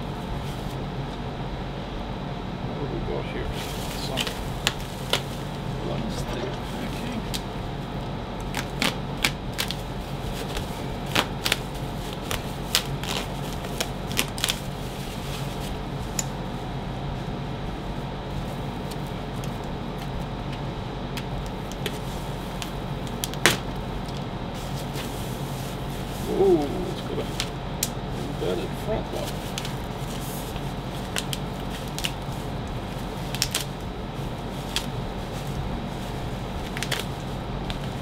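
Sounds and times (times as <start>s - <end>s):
steady low hum: 0.0s - 38.0s
plastic packaging crackling: 3.6s - 5.6s, 8.4s - 16.3s, 21.2s - 26.3s, 27.2s - 38.0s.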